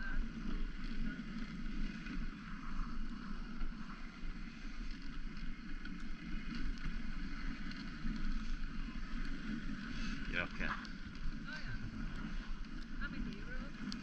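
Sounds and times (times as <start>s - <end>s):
sled gliding over snow: 0.0s - 14.0s
wind buffeting microphone: 8.3s - 14.0s.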